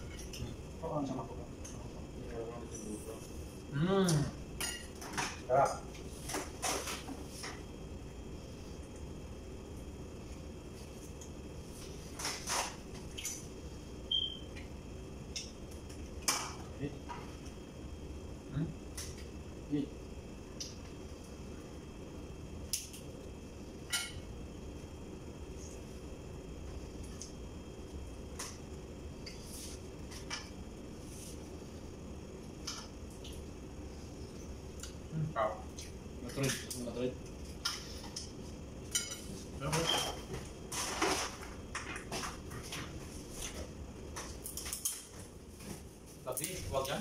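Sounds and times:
low room hum: 0.0 - 47.0.

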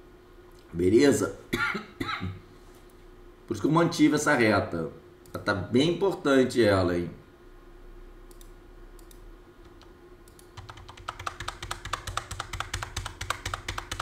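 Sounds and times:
faint steady hum: 0.0 - 14.0
computer keys tapping: 8.3 - 14.0.

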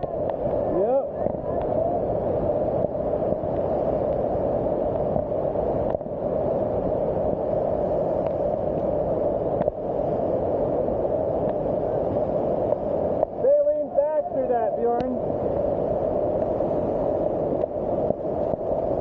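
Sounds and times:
waterfall roaring: 0.0 - 3.4, 11.2 - 15.6.

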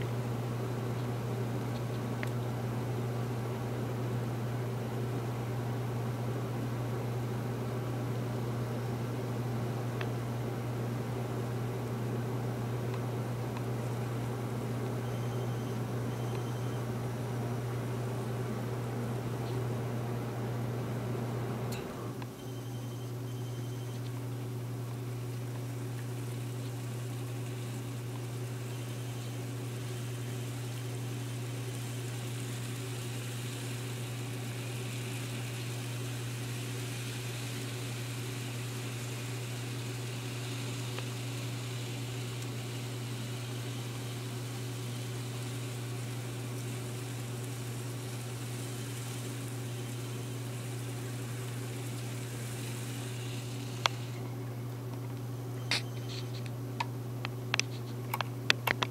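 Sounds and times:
model train motor whirring: 26.2 - 54.2.

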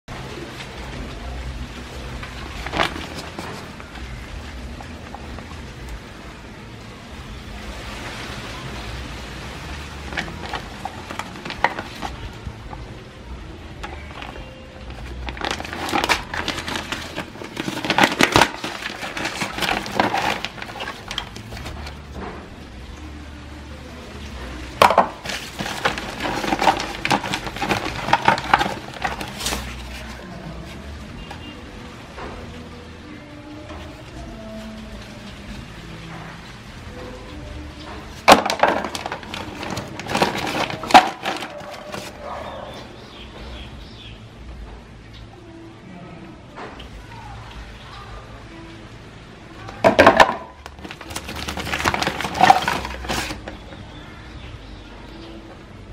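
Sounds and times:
plastic bag crinkling: 2.2 - 4.0, 10.0 - 12.4, 13.8 - 22.0, 24.8 - 30.8, 38.1 - 42.4, 49.7 - 53.7.

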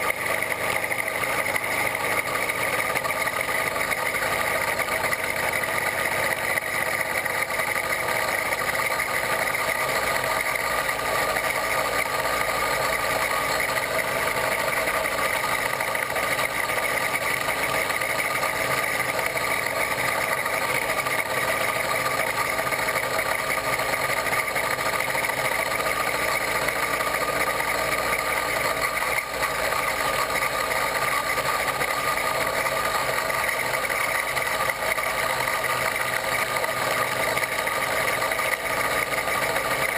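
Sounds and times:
two-stroke bicycle engine running: 0.0 - 39.9.

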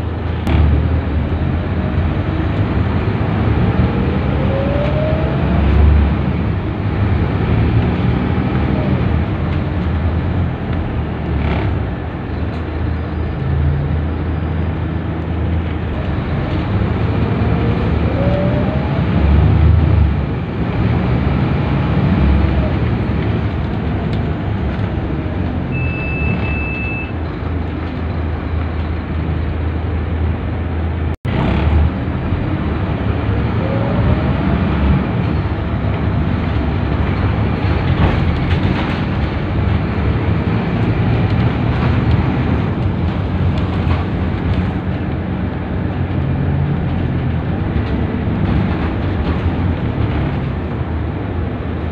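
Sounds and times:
bus diesel engine running: 0.0 - 51.9
tyre and road noise: 0.0 - 51.9
short high beep: 25.7 - 27.2.

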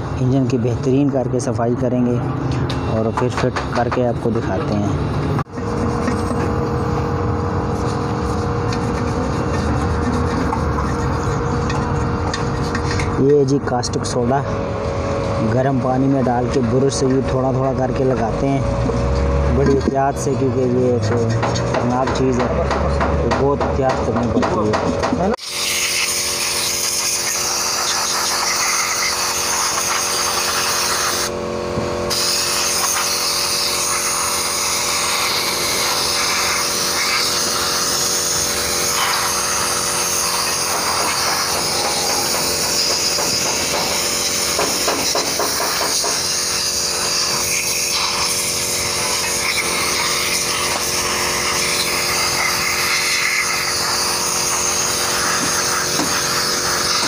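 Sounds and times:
steady hum: 0.0 - 23.0
spray gun hissing: 25.4 - 31.3, 32.0 - 57.0.

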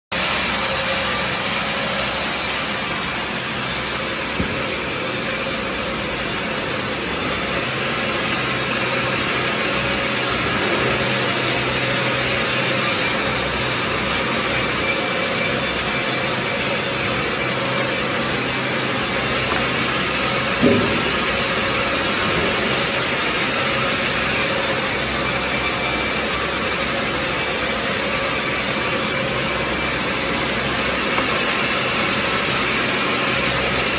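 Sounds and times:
band saw cutting log: 0.2 - 33.9
sharp knocks: 4.3 - 5.9, 19.5 - 22.9.

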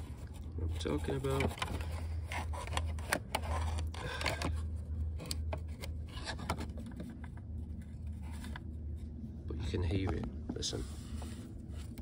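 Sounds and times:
scraping and rubbing: 0.0 - 9.4
steady low hum: 0.0 - 12.0.

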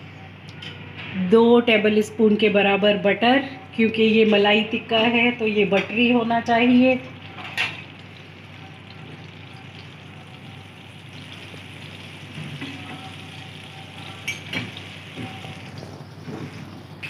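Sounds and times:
butter sizzling in a pan: 7.8 - 16.9.

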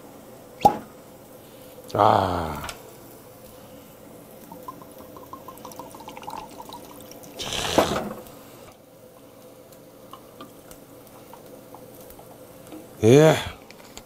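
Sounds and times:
carbonated water fizzing: 2.9 - 13.0
soda pouring over ice: 4.3 - 8.3
liquid glugging from bottle: 7.4 - 8.2.

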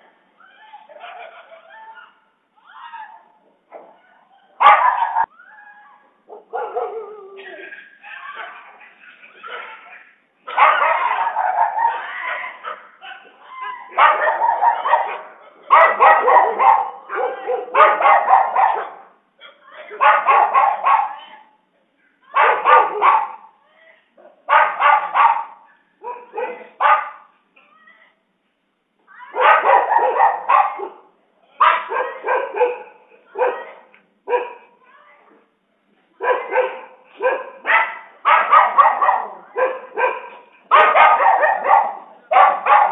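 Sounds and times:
dogs barking: 4.5 - 5.3, 6.3 - 19.2, 19.8 - 21.5, 22.3 - 23.6, 24.2 - 27.4, 29.3 - 34.8, 36.2 - 42.9.

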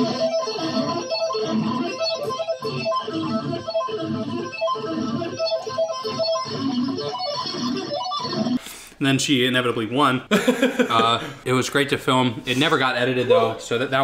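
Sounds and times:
electric guitar shredding: 0.0 - 8.8.

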